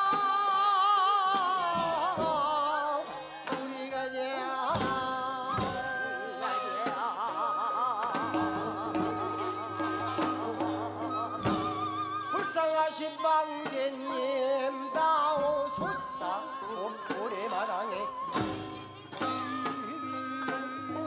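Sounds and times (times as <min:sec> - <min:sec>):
wind and bowed string ensemble: 0:05.6 - 0:21.0
sharp percussion strokes: 0:15.7 - 0:21.0.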